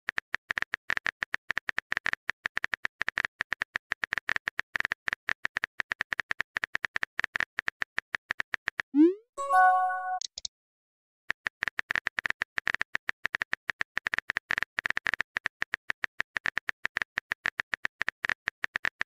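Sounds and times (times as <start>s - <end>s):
keyboard typing clicks: 9.0s - 10.5s.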